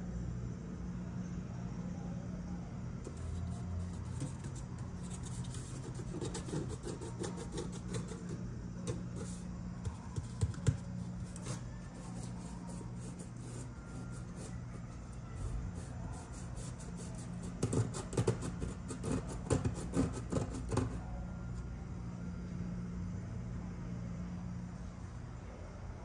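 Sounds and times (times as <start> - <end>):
steady low hum: 0.0 - 26.0
fingers scratching cardboard: 3.1 - 21.0.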